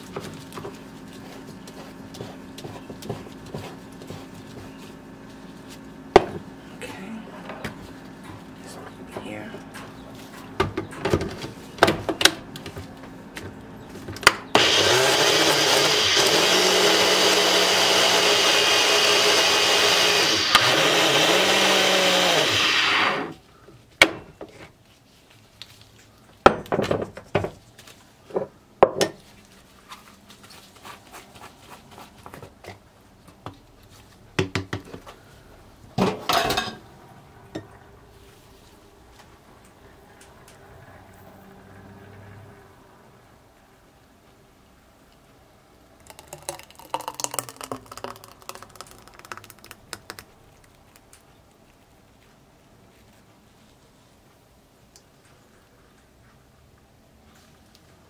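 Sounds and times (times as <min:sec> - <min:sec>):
blender motor running: 0:14.6 - 0:23.4.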